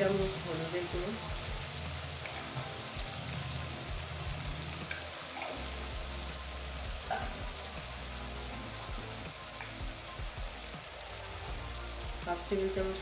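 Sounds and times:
oil and spices sizzling: 0.0s - 13.0s.

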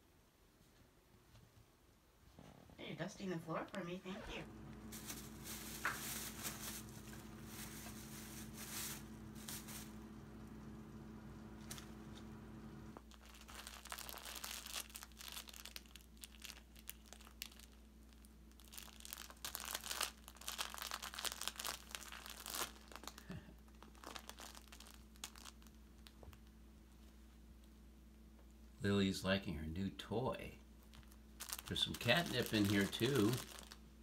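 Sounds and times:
fabric toy crinkling and rustling: 4.0s - 10.4s, 13.0s - 27.7s, 30.8s - 34.0s.

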